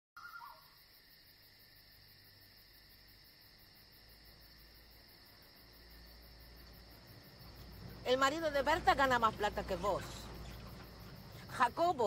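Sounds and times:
crickets chirping: 0.2s - 12.0s.

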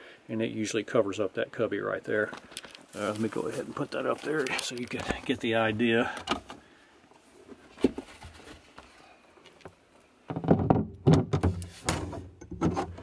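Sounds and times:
panel knocking and rubbing: 10.3s - 13.0s.

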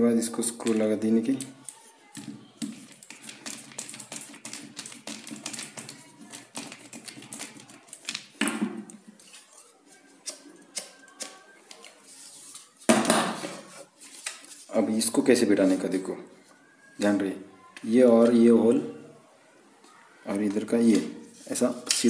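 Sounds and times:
plastic parts clicking and knocking: 0.6s - 9.0s.

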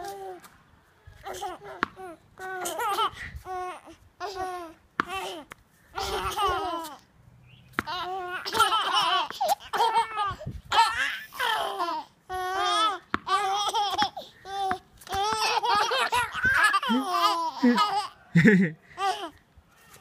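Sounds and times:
babies laughing: 2.4s - 7.0s, 7.9s - 19.3s.

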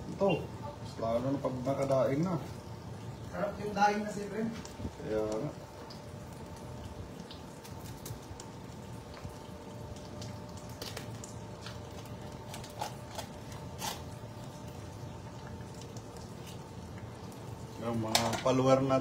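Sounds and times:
steady hum: 0.0s - 19.0s
knife squishing and scraping fish: 10.7s - 14.6s, 16.2s - 16.7s.

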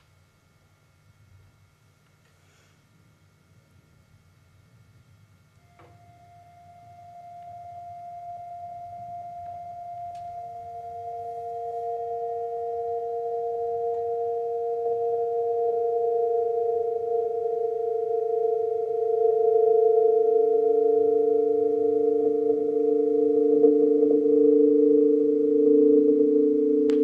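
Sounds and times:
high sustained pure tone: 3.0s - 27.0s
lower electronic tone: 3.2s - 27.0s
third lower tone: 5.6s - 27.0s.

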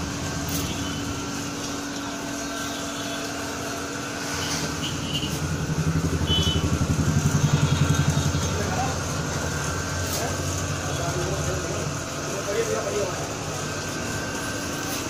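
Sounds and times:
machine mechanical hum: 0.0s - 15.0s.

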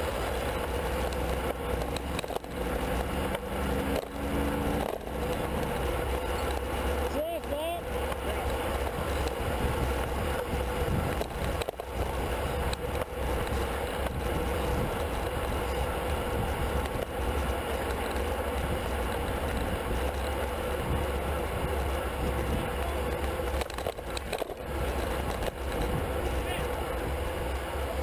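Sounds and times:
road bikes rolling: 0.0s - 28.0s
wind rushing over microphone: 8.6s - 17.7s, 18.5s - 28.0s.

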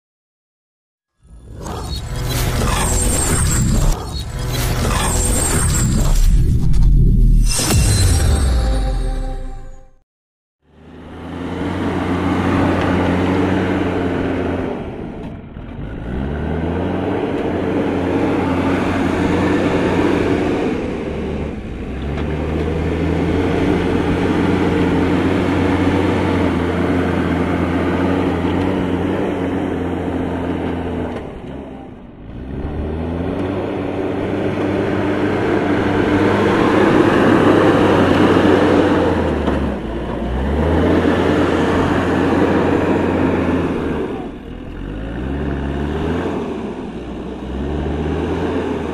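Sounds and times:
diesel engine revving under load: 10.6s - 48.9s.

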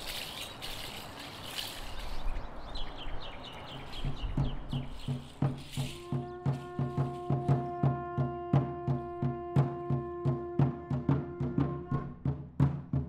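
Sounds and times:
rushing outdoor background: 0.0s - 13.0s
low drum beat: 3.8s - 13.0s.

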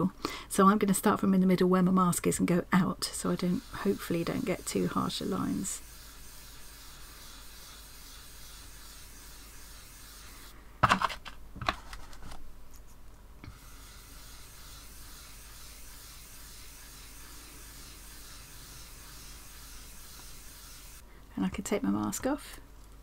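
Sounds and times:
brush rubbing over card: 3.1s - 10.5s, 13.5s - 21.0s
brush rustling on ink pad: 3.1s - 10.5s, 13.5s - 21.0s.

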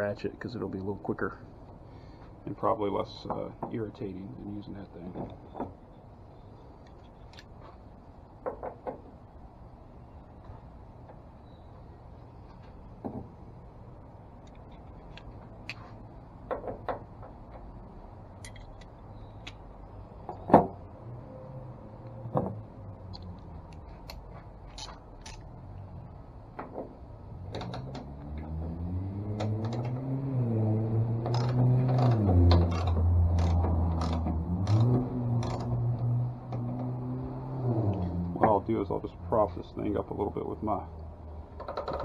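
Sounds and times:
engine-like hum: 0.0s - 42.0s
socket ratchet clicking: 32.6s - 35.7s.

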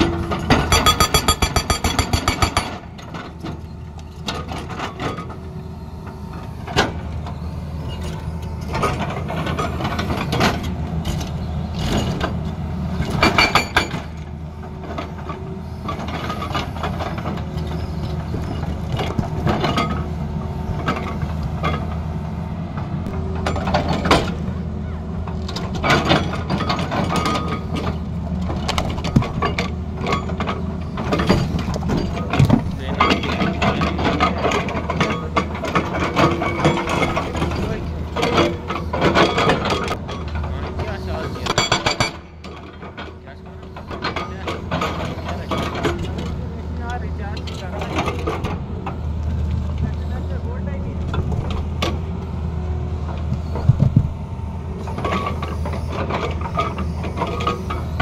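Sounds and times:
hydraulic breaker hammering rock: 0.0s - 3.4s, 13.0s - 14.2s, 28.6s - 48.6s
diesel engine running: 0.0s - 58.0s.

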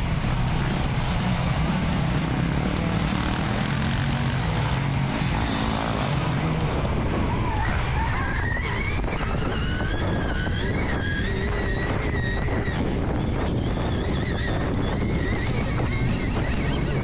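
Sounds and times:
wind rush on microphone: 6.6s - 17.0s.

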